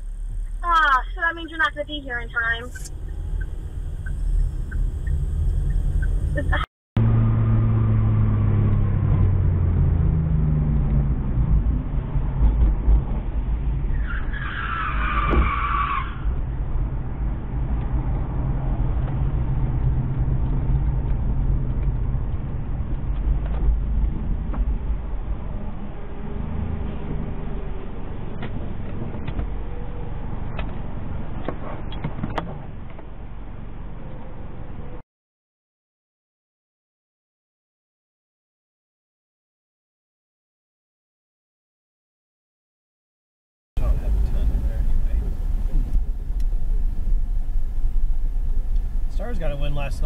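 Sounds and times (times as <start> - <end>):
car engine and road rumble: 0.0 - 35.0, 43.8 - 50.0
tyres screeching: 13.9 - 16.3.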